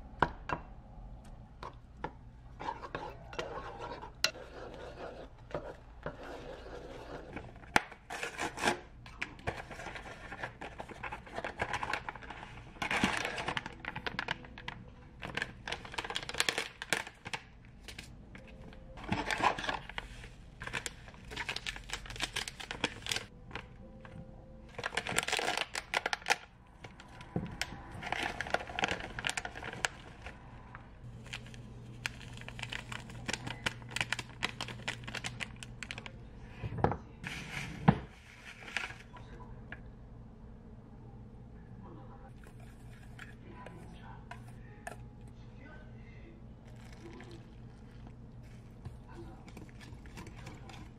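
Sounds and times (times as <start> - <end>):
plastic packets crinkling and tearing: 9.4 - 18.1, 19.0 - 23.7, 24.7 - 30.4, 31.0 - 36.1.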